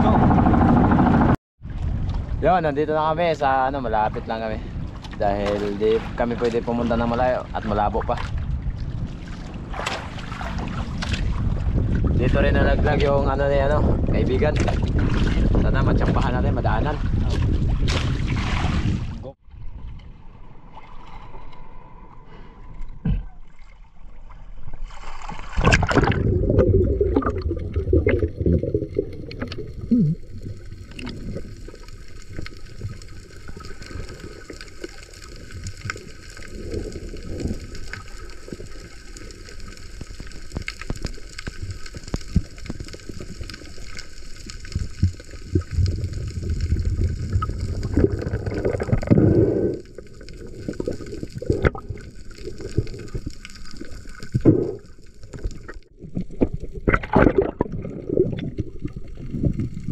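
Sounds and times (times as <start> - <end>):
water sloshing and gurgling: 0.0 - 2.6, 3.2 - 59.9.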